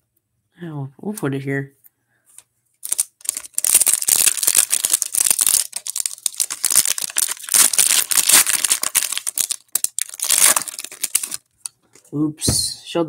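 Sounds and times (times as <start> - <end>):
foil wrapper crinkling and tearing: 2.8 - 11.5.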